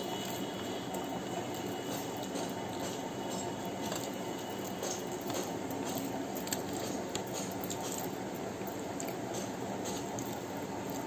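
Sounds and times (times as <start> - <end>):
steady background noise: 0.0 - 11.0
chewing: 2.3 - 11.0.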